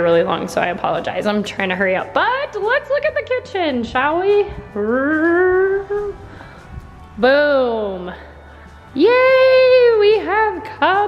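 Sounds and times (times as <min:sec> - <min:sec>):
quiet background music: 0:00.0 - 0:11.0
woman singing a rising note: 0:04.8 - 0:06.2.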